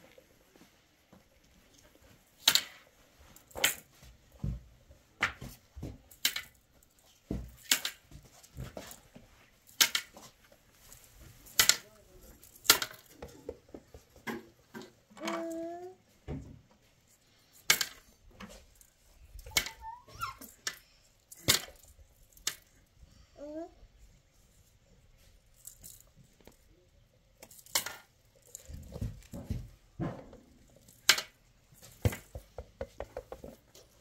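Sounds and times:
hard objects knocking and clattering: 27.4s - 34.0s.

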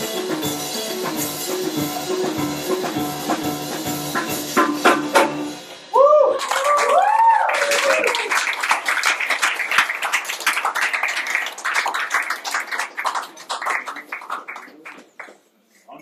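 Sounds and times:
jazz music: 0.0s - 5.9s
gliding whoop: 5.9s - 8.3s
audience clapping: 6.4s - 15.5s.

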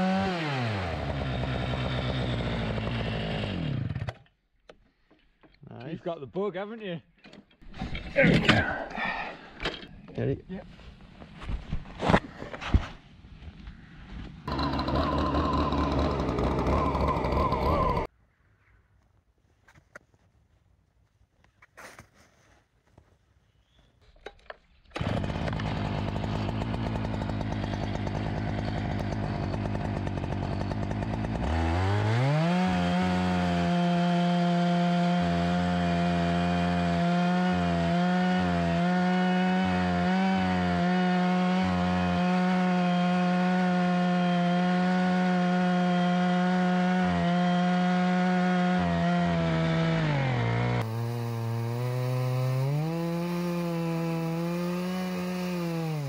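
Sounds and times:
chainsaw cutting through log: 0.0s - 4.2s, 14.5s - 18.1s, 24.9s - 56.0s
chainsaw idling and revving: 0.0s - 4.2s, 14.5s - 18.1s, 25.0s - 56.0s.

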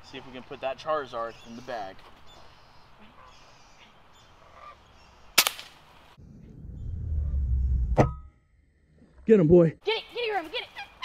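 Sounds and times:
air rifle shot crack: 5.4s - 5.8s
low rumble: 6.2s - 9.4s.

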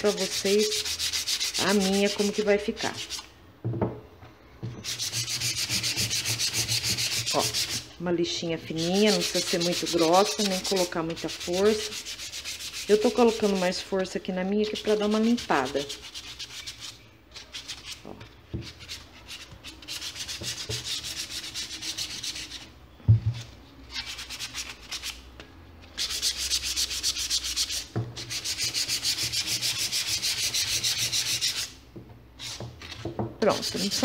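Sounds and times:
sandpaper scraping rubber sole: 0.0s - 3.2s, 4.8s - 7.8s, 8.7s - 13.6s, 33.5s - 34.0s
thump: 3.6s - 4.0s.

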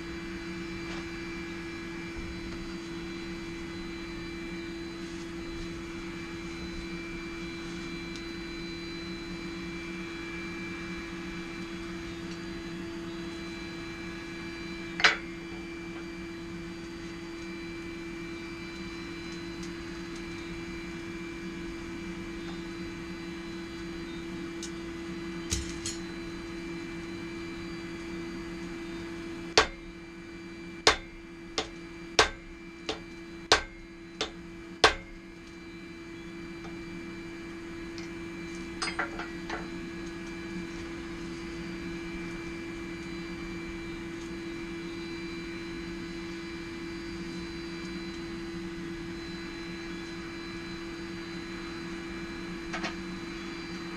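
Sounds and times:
forge humming: 0.0s - 53.9s
hammer striking steel on anvil: 29.6s - 29.8s, 30.9s - 35.1s, 38.8s - 39.4s.

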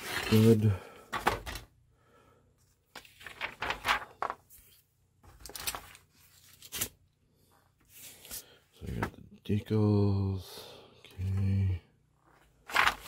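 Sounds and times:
paper pages rustling: 0.0s - 1.6s, 2.8s - 7.0s, 12.3s - 13.0s.

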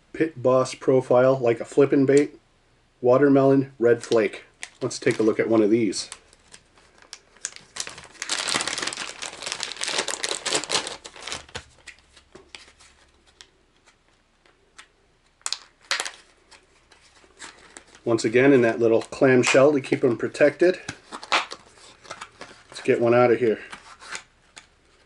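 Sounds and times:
plastic packaging crinkling: 4.6s - 14.6s, 15.4s - 20.0s.

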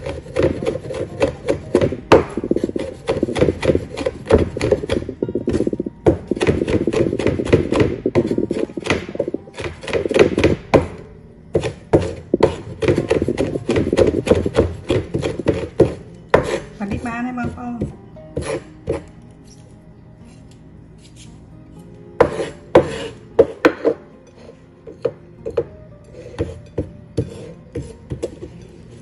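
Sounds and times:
knife chopping on wooden board: 0.0s - 16.6s, 17.8s - 19.0s, 22.2s - 24.0s.

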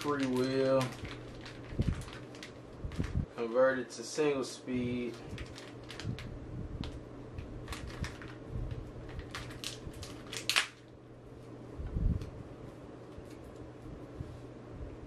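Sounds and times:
plastic packaging crinkling: 0.0s - 3.3s, 5.0s - 11.0s.

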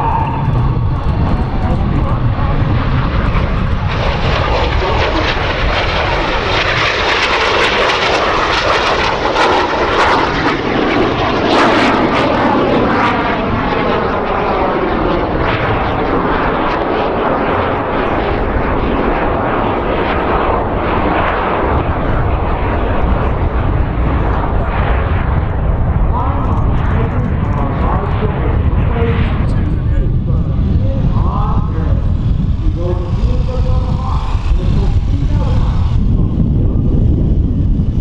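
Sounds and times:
jets flying past: 0.0s - 38.0s.

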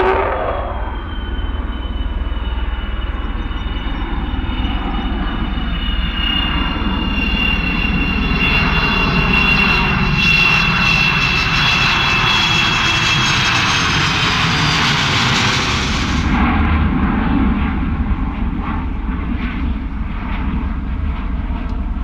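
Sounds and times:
high falling jet whistle: 0.0s - 8.6s
jet aircraft roar passing overhead: 0.0s - 22.0s.

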